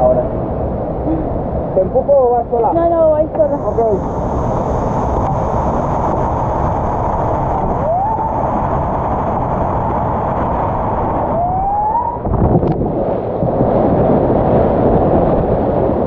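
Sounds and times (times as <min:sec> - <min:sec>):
whitewater rapid roaring: 0:02.7 - 0:16.0
rising whistle-like tones: 0:11.2 - 0:12.3.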